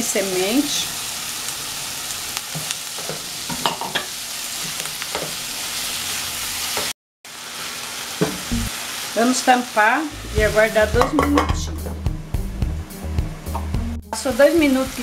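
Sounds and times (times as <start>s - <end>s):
vegetables sizzling in pan: 0.0s - 11.9s, 14.2s - 15.0s
spatula knocking and scraping pan: 10.4s - 12.0s.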